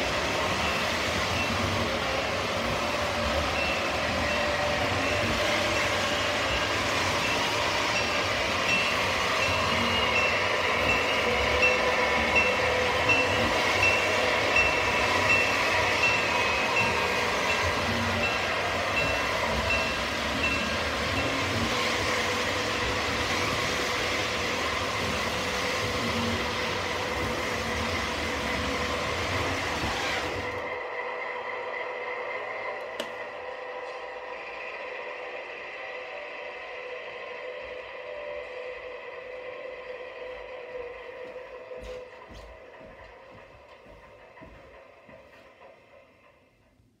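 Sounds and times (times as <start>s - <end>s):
model locomotive humming: 0.0s - 47.0s
bell dinging: 3.4s - 21.6s.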